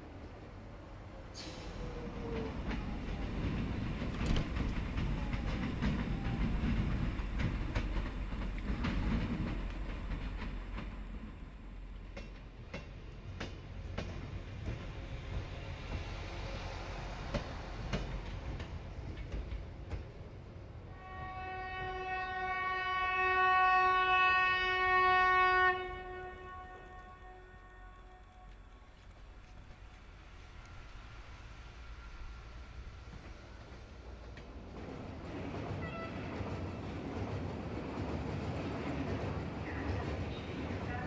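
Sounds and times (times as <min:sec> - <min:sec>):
train rumbling on tracks: 0:00.0 - 0:41.0
wheels clacking over rail joints: 0:02.2 - 0:11.2.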